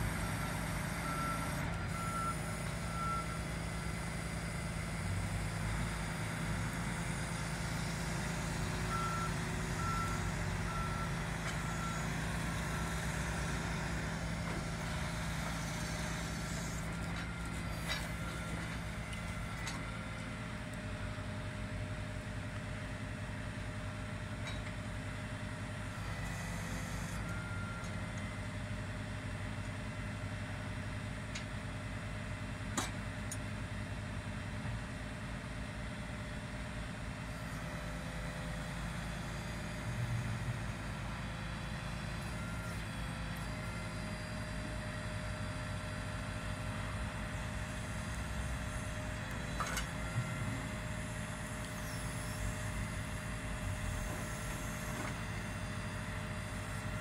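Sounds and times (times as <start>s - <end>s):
truck engine humming: 0.1s - 21.6s, 38.2s - 57.0s.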